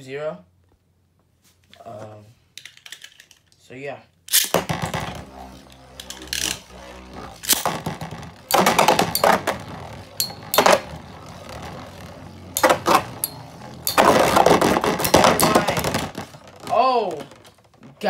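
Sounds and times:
spinning tops clacking together: 2.6s - 3.5s, 4.3s - 16.3s
spinning tops whirring: 4.3s - 17.7s.

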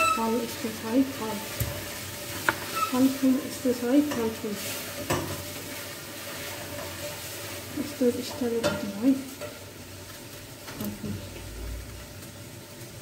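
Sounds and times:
person's voice: 7.8s - 9.3s, 10.8s - 11.4s.

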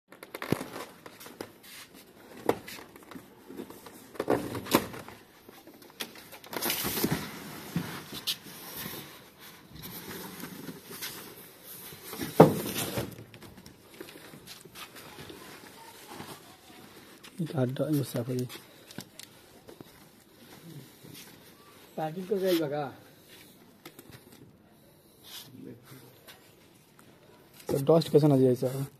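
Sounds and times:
cardboard box knocks and thumps: 12.2s - 13.2s.

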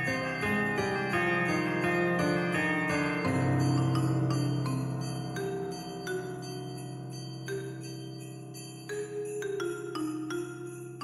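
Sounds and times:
instrumental christmas music: 0.0s - 11.0s
sleigh bells in festive music: 0.0s - 11.0s.

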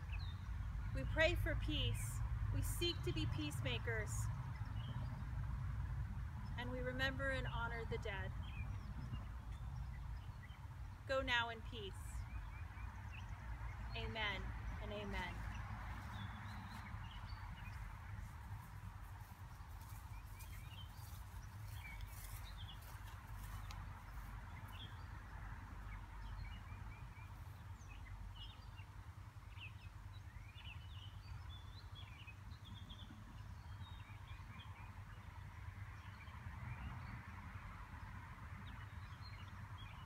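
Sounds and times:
small birds chirping: 0.0s - 1.0s, 2.9s - 37.3s, 38.0s - 40.0s
low outdoor rumble: 0.0s - 28.6s.

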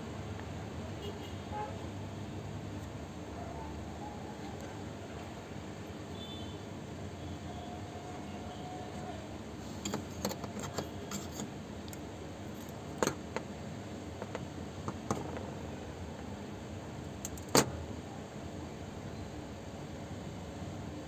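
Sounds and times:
metallic clicks of parts handled: 9.8s - 13.4s, 17.2s - 17.7s.

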